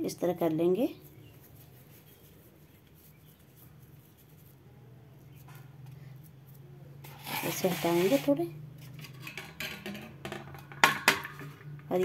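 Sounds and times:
hands rolling dough: 0.2s - 8.2s.

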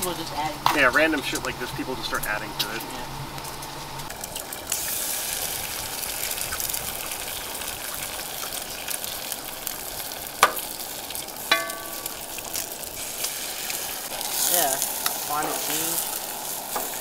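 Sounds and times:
eggs sizzling in skillet: 0.0s - 17.0s
short metallic ring: 11.5s - 12.2s.

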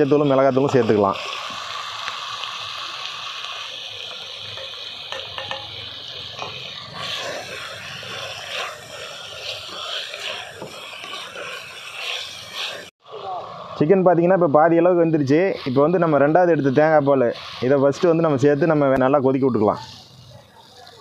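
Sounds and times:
chicken sizzling in hot oil: 0.0s - 21.0s
spoon stirring and scraping: 4.5s - 12.9s.

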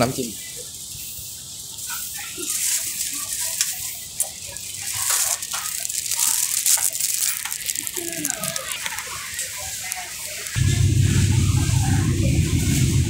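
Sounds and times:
plastic bag crinkling: 1.9s - 10.6s.

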